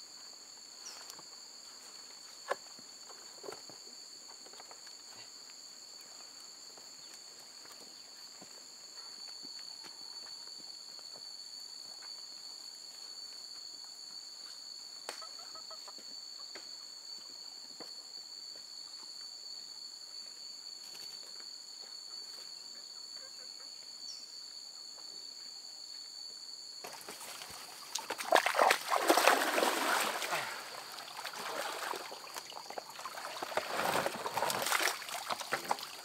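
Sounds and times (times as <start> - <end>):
high-pitched insect drone: 0.0 - 36.0
person wading through water: 27.9 - 36.0.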